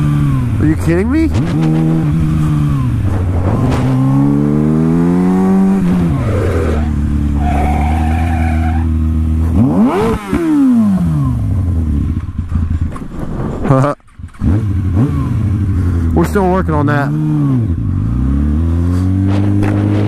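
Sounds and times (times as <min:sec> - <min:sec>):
motorcycle engine revving: 0:00.0 - 0:20.0
high tire screech: 0:05.9 - 0:09.0.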